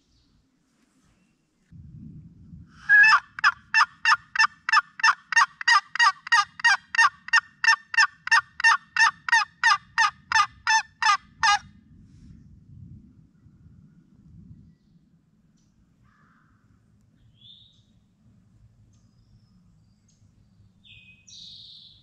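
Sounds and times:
turkey call notes: 2.8s - 11.6s.

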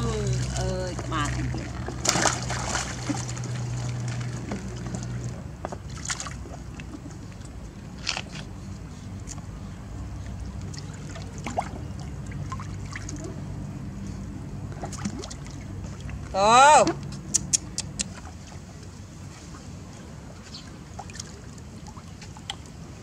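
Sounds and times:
small splashes: 0.0s - 8.3s, 10.2s - 13.5s, 14.7s - 18.9s, 20.4s - 22.9s
water sloshing in paddling pool: 0.0s - 17.0s, 18.0s - 23.0s.

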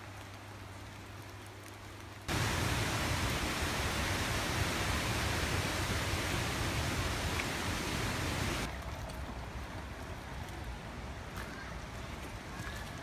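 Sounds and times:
river rushing over white water: 2.3s - 8.7s.

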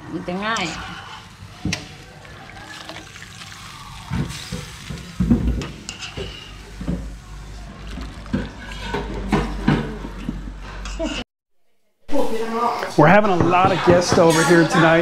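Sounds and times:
water dripping and splashing: 0.6s - 9.0s.

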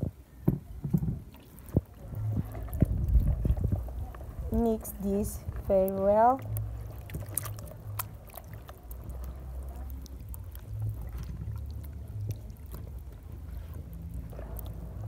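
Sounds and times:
low rumble: 0.0s - 15.0s
small wet clicks: 0.8s - 15.0s
wet squelching and sloshing: 1.2s - 15.0s.

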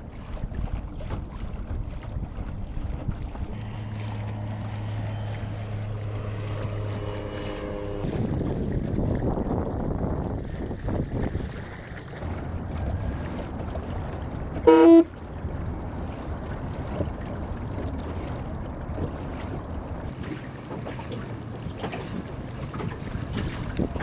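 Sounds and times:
water and wind wash: 0.0s - 24.0s
short horn toot: 14.7s - 15.1s.

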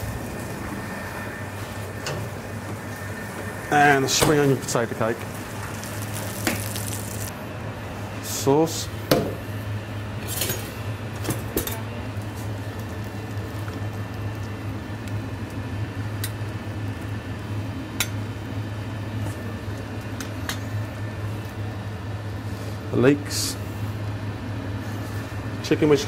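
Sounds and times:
low hum of kitchen equipment: 0.0s - 26.0s
utensils clinking on metal counter: 10.2s - 11.8s.

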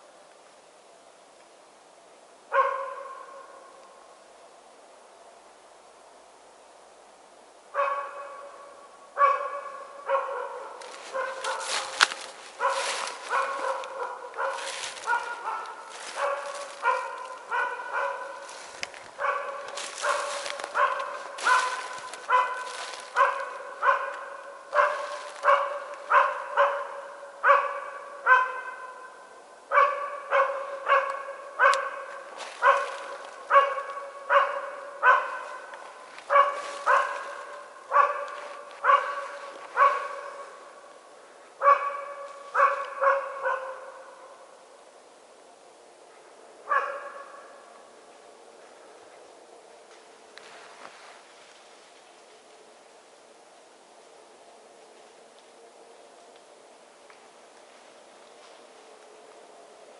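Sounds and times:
dog barking: 2.5s - 3.6s, 7.8s - 40.7s, 41.6s - 44.3s, 46.7s - 47.7s.

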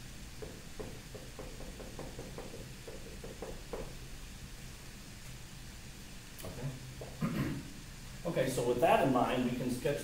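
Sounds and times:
marker writing on whiteboard: 0.4s - 3.9s.

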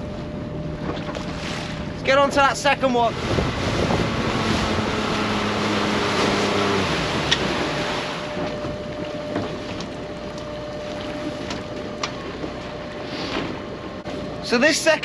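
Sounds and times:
boat engine running: 0.0s - 15.0s
water noise: 0.0s - 15.0s
wind: 0.0s - 15.0s
faint steady whine: 6.5s - 15.0s.

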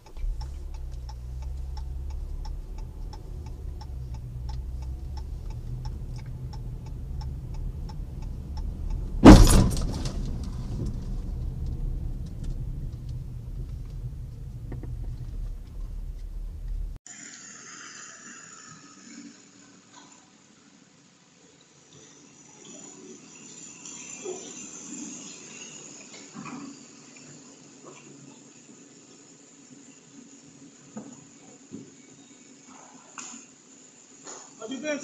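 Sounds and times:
turn signal ticking: 0.0s - 9.3s, 10.2s - 17.0s
car engine and tyres rumbling: 0.0s - 17.0s
sudden loud bang: 9.0s - 11.2s.

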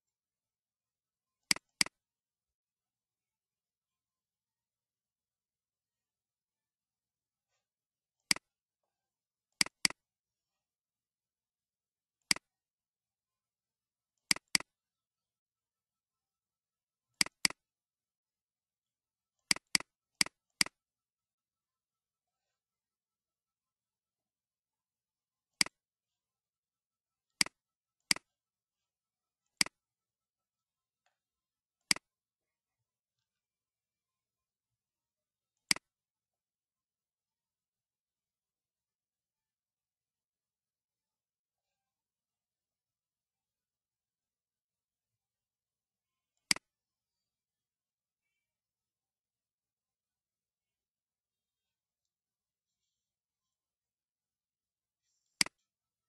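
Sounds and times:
computer mouse clicks: 1.4s - 2.0s, 8.2s - 8.5s, 9.6s - 10.1s, 12.2s - 12.6s, 14.2s - 14.8s, 17.1s - 17.7s, 19.4s - 20.8s, 25.6s - 25.8s, 27.4s - 28.3s, 29.4s - 29.8s, 31.8s - 32.1s, 35.6s - 35.9s, 46.4s - 46.7s, 55.0s - 55.7s.

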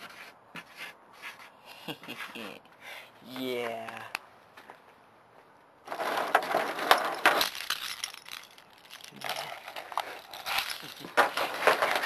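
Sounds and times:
bunch of keys jangling: 7.4s - 11.4s.

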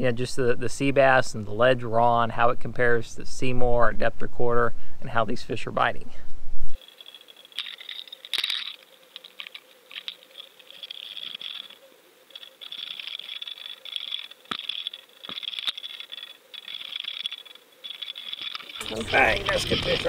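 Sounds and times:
underwater crackling and clicking: 6.8s - 20.0s.

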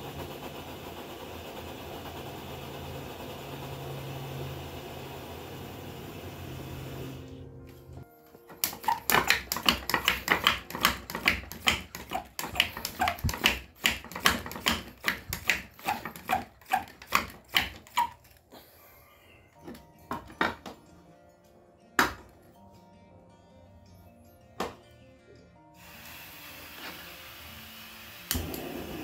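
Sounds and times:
pump squeaking: 8.5s - 18.3s
hand pump strokes: 8.5s - 18.4s.

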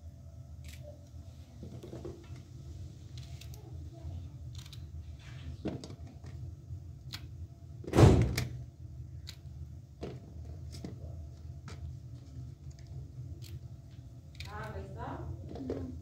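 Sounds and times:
steady low hum: 0.0s - 16.0s
loud thump: 7.9s - 8.4s.

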